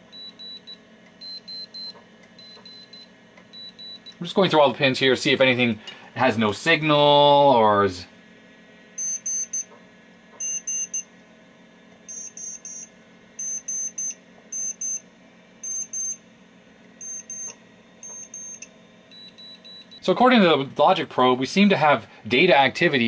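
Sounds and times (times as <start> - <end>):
short high-pitched beeps: 9.0 - 9.7, 10.4 - 11.1, 12.1 - 15.0, 15.6 - 16.2, 17.0 - 20.0.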